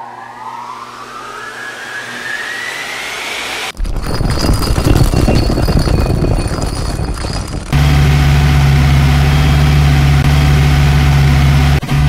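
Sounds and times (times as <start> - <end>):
engine running: 6.9 - 12.0.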